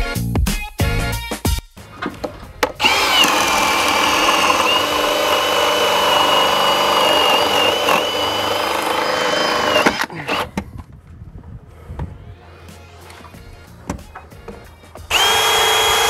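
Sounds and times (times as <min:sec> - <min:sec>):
power drill boring into wood: 0:02.8 - 0:10.5, 0:15.1 - 0:16.0.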